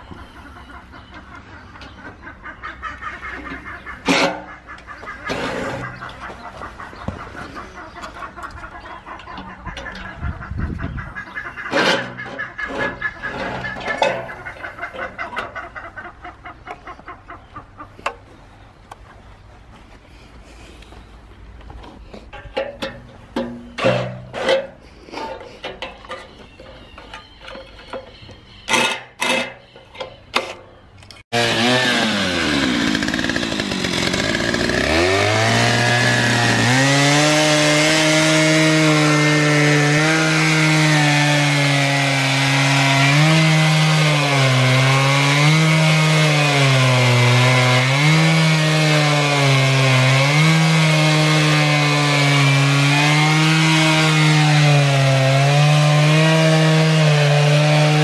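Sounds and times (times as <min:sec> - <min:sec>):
chainsaw ripping a log: 0:31.3 - 0:58.0.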